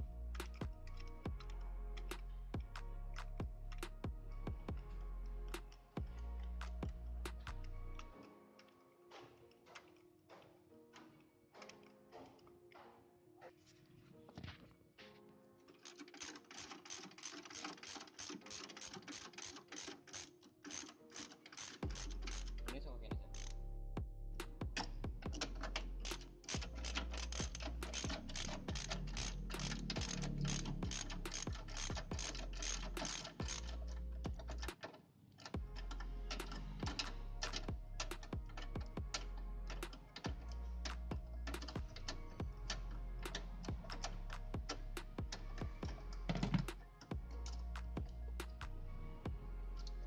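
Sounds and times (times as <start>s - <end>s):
ratchet wrench clicking: 25.4s - 33.8s.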